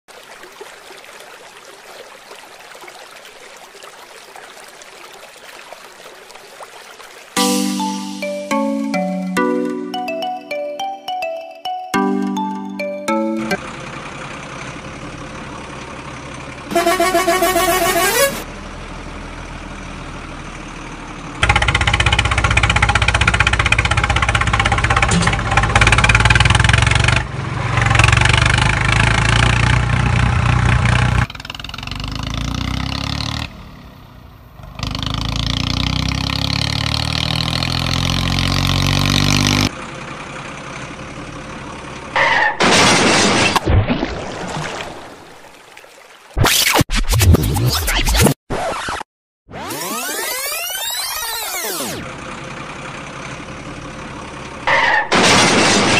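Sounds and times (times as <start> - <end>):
short rising tone: 7.4 - 13.7
truck engine revving: 13.2 - 20.3, 21.4 - 40.0.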